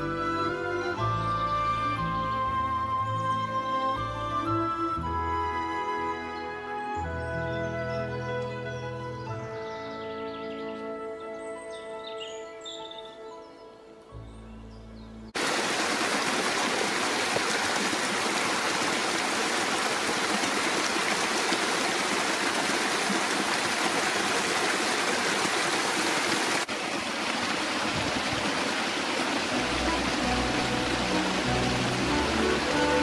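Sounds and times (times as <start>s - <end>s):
brook running over cascades: 15.4s - 33.0s.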